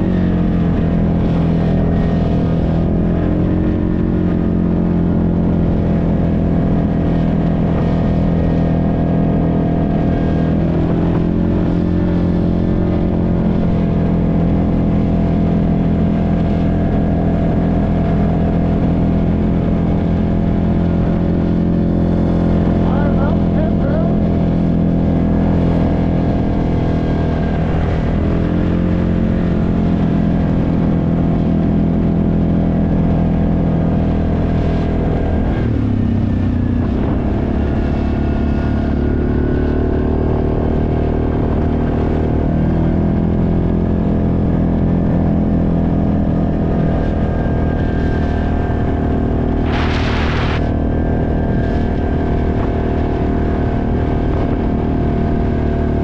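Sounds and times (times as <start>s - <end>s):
quad bike engine running: 0.0s - 56.0s.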